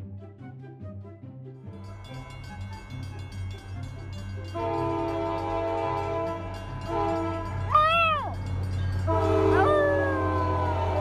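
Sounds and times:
horn blasts: 4.4 - 7.8, 9.1 - 11.0
dog howling: 7.7 - 8.4, 9.4 - 11.0.

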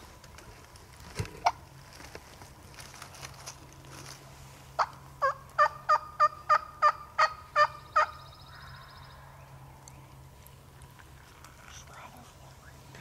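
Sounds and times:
wild turkey yelps: 4.8 - 9.3.

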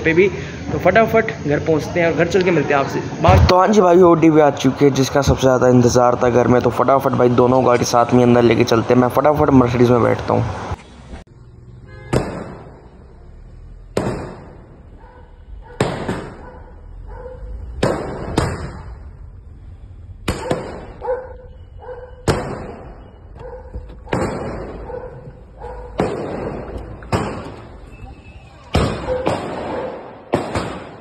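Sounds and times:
sharp bangs: 3.2 - 8.8, 12.0 - 19.4, 20.1 - 27.9, 28.5 - 31.0.

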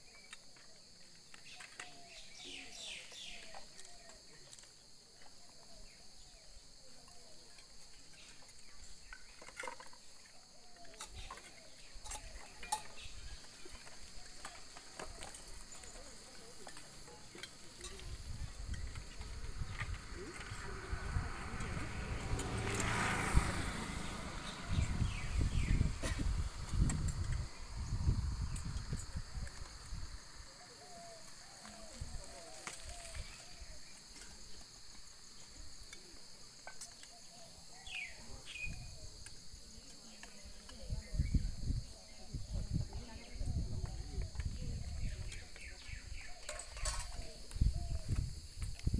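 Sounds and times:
insects droning: 0.0 - 48.9
utensils clinking on metal bowls: 11.0 - 16.0, 46.4 - 47.3.

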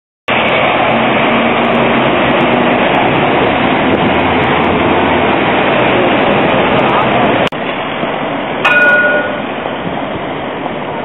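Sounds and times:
street traffic noise: 0.3 - 11.0.

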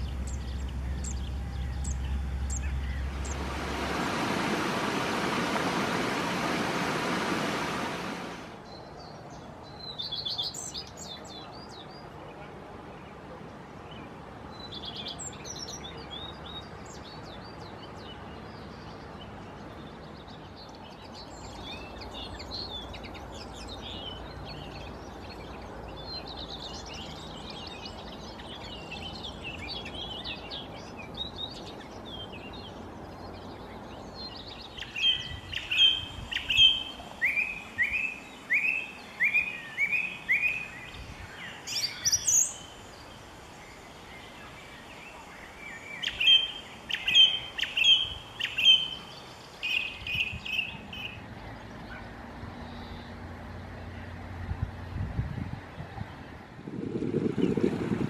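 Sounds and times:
song thrush singing: 0.0 - 12.1, 13.9 - 52.0
linnet twittering warble: 45.6 - 51.2.

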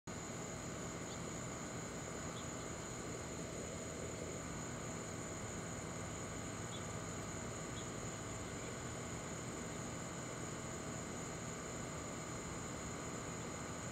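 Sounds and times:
insects chorus: 0.1 - 13.9
faint chirps: 0.9 - 1.4, 2.0 - 5.1, 6.6 - 8.9.

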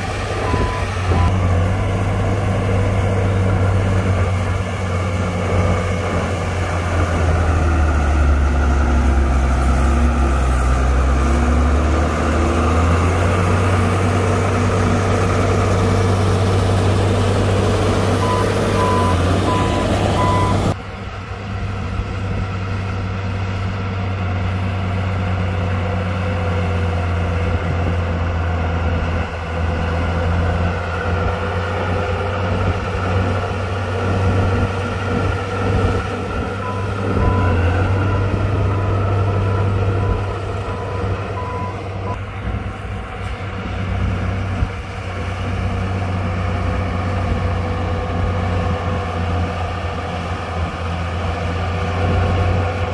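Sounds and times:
heavy machinery diesel engine: 0.0 - 52.9
warning alarm beeps: 0.4 - 1.4, 18.2 - 20.8, 36.6 - 42.2.

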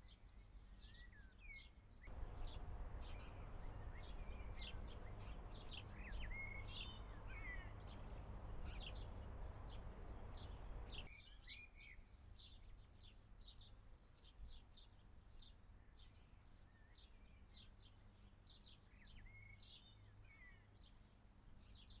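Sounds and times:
small birds chirping: 0.0 - 22.0
steady background hiss: 2.1 - 11.1.

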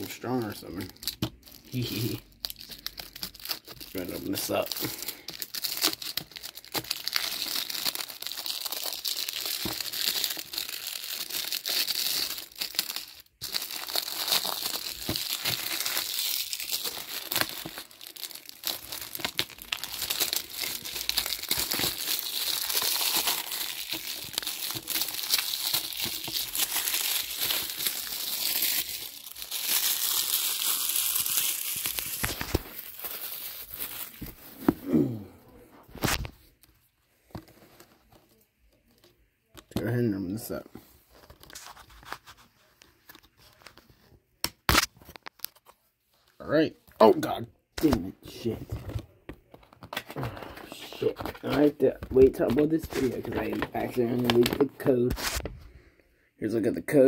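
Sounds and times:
plastic wrap crinkling: 0.0 - 34.9.

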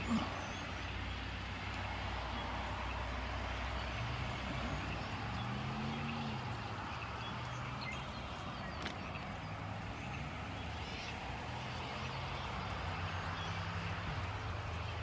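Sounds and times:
flock of birds chattering: 0.0 - 15.0
low traffic hum: 0.0 - 15.0
vehicle engine: 0.0 - 15.0.

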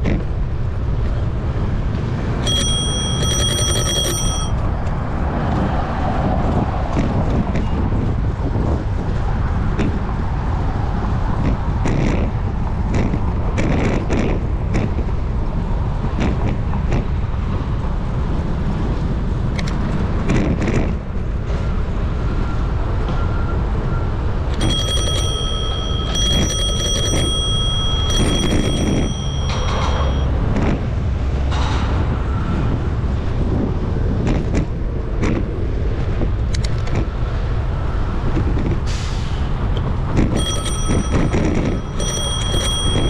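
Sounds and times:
bicycle rattling: 2.4 - 4.5, 24.6 - 30.3, 40.4 - 43.0
bicycle bell ringing: 2.4 - 4.6, 24.6 - 30.4, 40.3 - 43.0
scattered clicks: 2.4 - 5.0, 24.5 - 30.7, 36.4 - 37.1, 39.8 - 43.0
wind rumbling on microphone: 4.5 - 24.7, 27.0 - 43.0.

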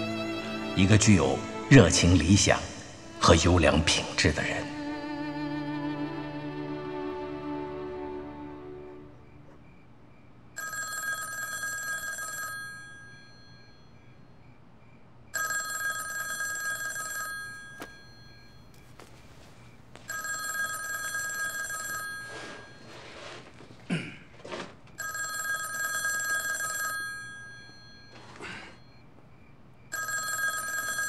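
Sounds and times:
telephone bell ringing: 10.6 - 14.4, 15.3 - 18.8, 20.0 - 23.5, 24.4 - 29.1, 29.9 - 31.0.

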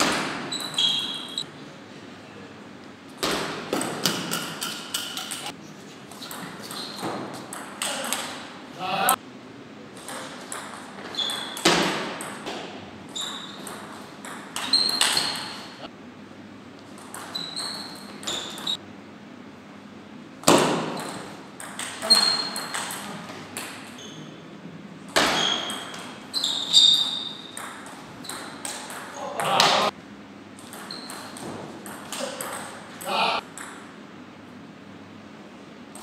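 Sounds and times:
table tennis ball pinging: 6.1 - 8.4, 10.0 - 15.8, 17.0 - 18.8, 20.4 - 23.9, 25.1 - 29.9, 30.6 - 33.9.

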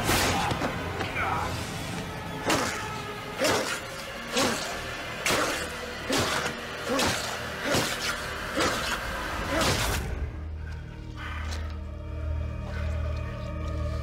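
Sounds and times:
dramatic orchestral music: 0.0 - 14.0.

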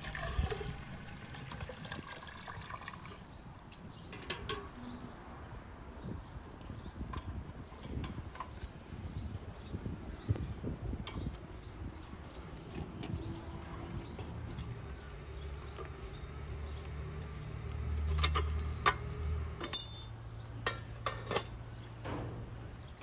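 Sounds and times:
metal parts clinking: 18.0 - 21.6.

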